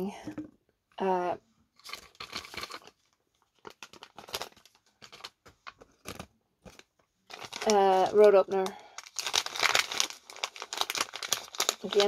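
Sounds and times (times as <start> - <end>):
paper rustling: 1.8 - 8.3, 9.1 - 12.0.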